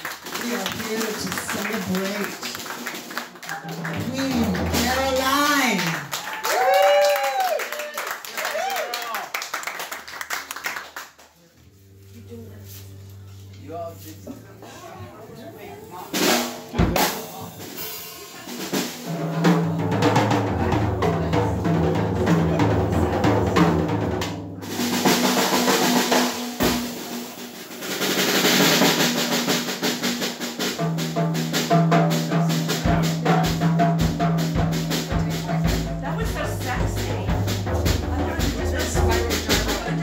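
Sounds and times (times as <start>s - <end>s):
snare drum: 0.2s - 6.0s, 16.2s - 40.0s
bass drum: 0.4s - 6.1s, 16.2s - 27.6s, 28.3s - 40.0s
bass guitar: 3.5s - 5.8s, 11.7s - 27.3s, 30.8s - 40.0s.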